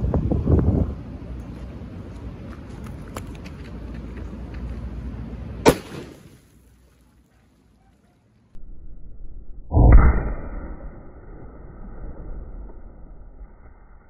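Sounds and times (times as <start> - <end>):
wind buffeting microphone: 0.0 - 1.8
firecracker bang: 5.6 - 6.4.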